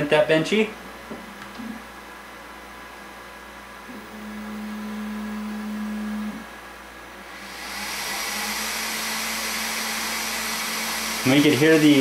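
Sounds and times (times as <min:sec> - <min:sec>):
cooling fan rushing air: 0:00.0 - 0:12.0
printer motor hum: 0:03.9 - 0:06.6, 0:07.3 - 0:12.0.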